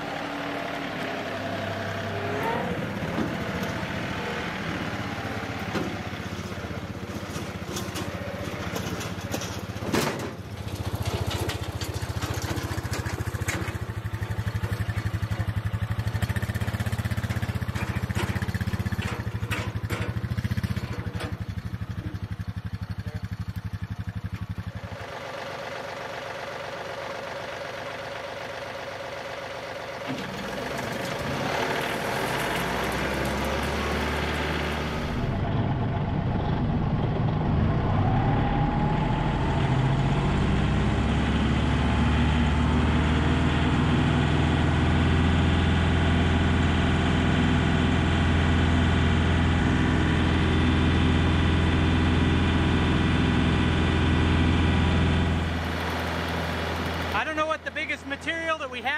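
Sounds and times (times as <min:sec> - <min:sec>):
tractor diesel engine running: 0:00.0 - 0:58.9
wood chipper running: 0:00.0 - 0:58.9
rising whine: 0:33.2 - 0:43.9.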